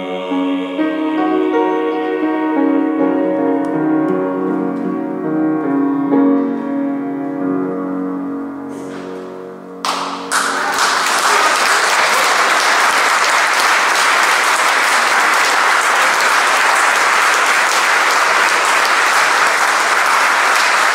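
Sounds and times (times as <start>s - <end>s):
audience applauding: 9.8s - 20.9s.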